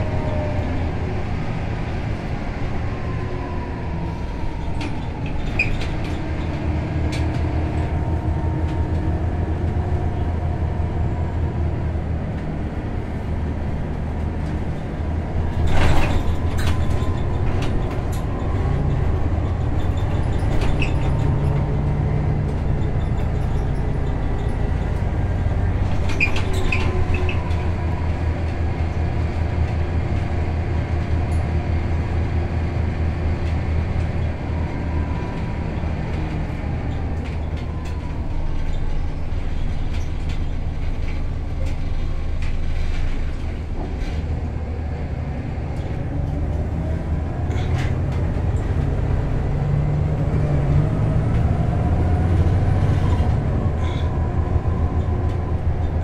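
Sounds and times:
bus diesel engine drone: 0.0s - 56.0s.

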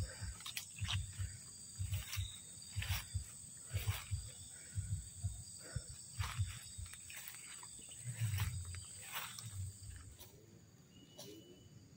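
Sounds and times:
footsteps through dry undergrowth: 0.0s - 10.3s
high insect drone: 0.0s - 11.9s.

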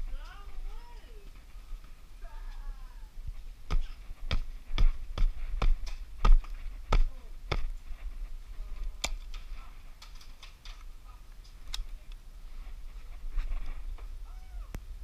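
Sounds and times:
sharp thuds: 3.6s - 8.2s.

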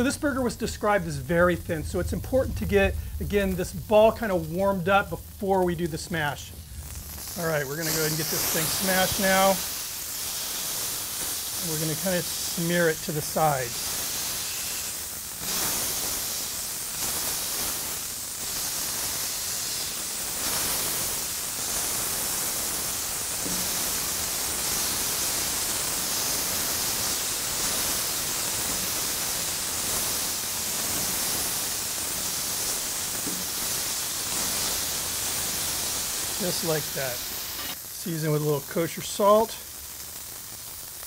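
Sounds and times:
meat patty sizzling on griddle: 0.0s - 41.0s.

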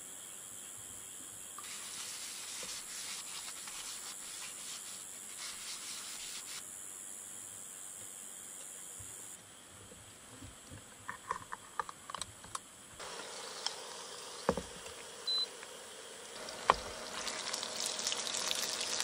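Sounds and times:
paper towel wiping hot plate: 1.6s - 6.6s.

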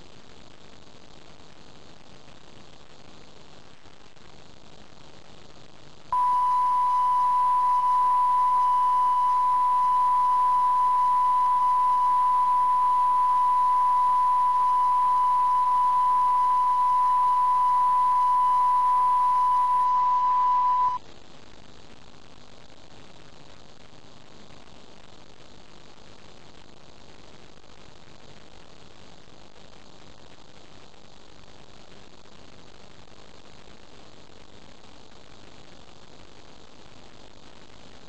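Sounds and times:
faint hiss: 0.0s - 38.0s
steady test tone: 6.2s - 21.0s.

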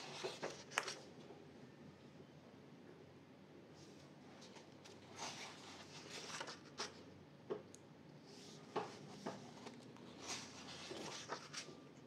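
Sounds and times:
paper page rustling: 0.0s - 1.1s, 4.4s - 7.0s, 8.3s - 11.8s.

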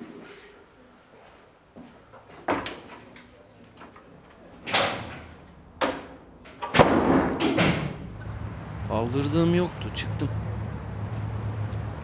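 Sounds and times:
wooden door closing: 4.7s - 8.0s.

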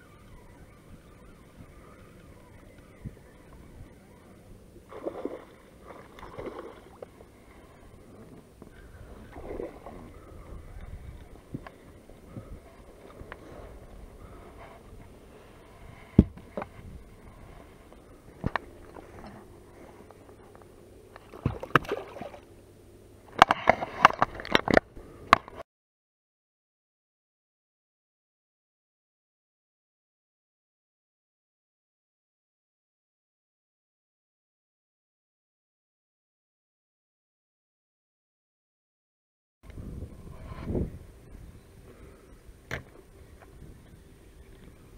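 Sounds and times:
water lapping against boat hull: 4.9s - 22.5s.

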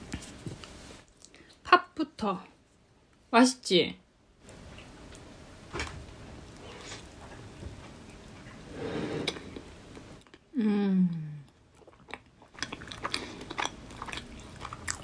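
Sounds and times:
chewing: 11.5s - 15.0s.

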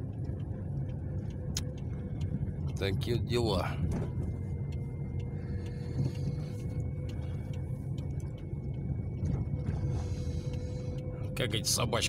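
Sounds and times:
car engine and tyre rumble: 0.0s - 12.0s
faint constant whine: 0.0s - 12.0s
light ticks: 0.0s - 12.0s.

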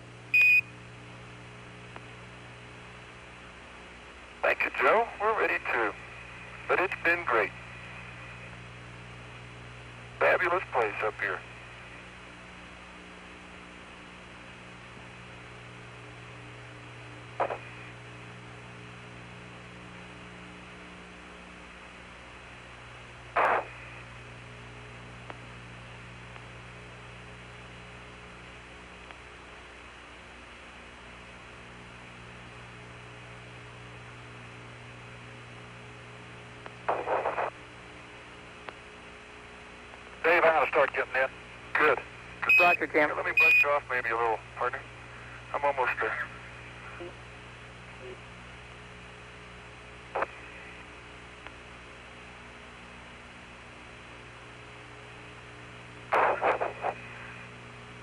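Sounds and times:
radio link hiss and hum: 0.0s - 58.0s
radio noise crackles: 4.4s - 8.8s, 10.1s - 12.1s, 17.3s - 18.4s, 23.2s - 24.3s, 36.6s - 37.9s, 40.0s - 47.3s, 50.1s - 51.0s, 56.0s - 57.7s.

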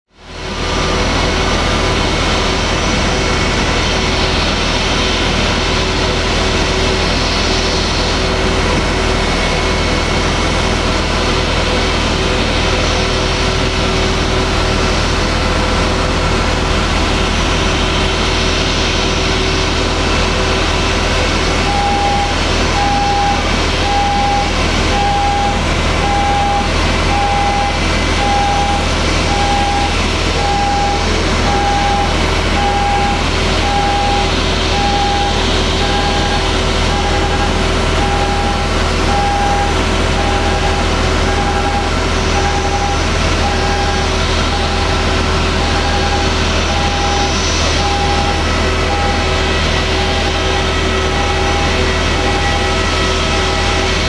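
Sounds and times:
machinery drone: 0.1s - 54.0s
low hum: 0.2s - 54.0s
warning beeper: 21.5s - 54.0s.

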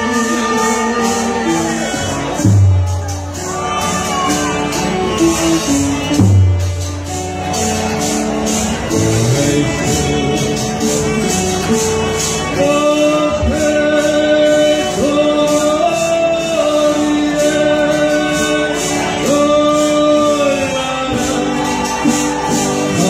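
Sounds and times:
men singing in harmony: 0.0s - 2.5s, 8.9s - 23.0s
strummed guitars: 0.0s - 23.0s.

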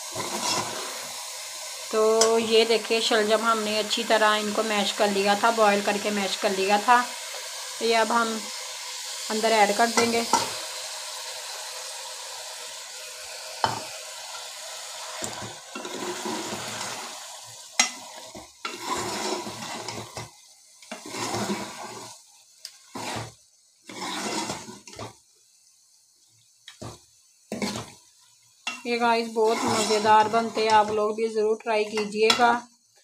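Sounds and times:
metal spoon stirring and scraping: 0.0s - 1.2s, 15.2s - 17.1s, 17.8s - 25.1s, 27.5s - 28.0s, 28.6s - 31.1s
meat sizzling in metal pot: 0.0s - 33.0s.

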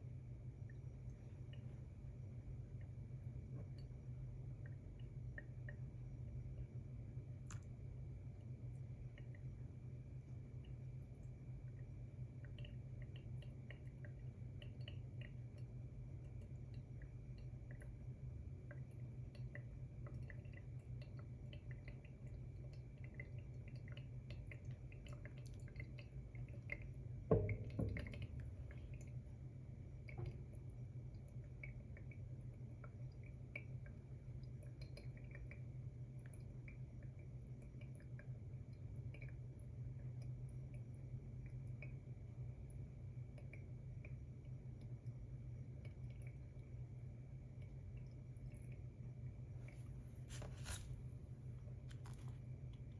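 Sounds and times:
coffee dripping through filter: 0.0s - 52.9s
kettle knocking on table: 27.3s - 28.2s.

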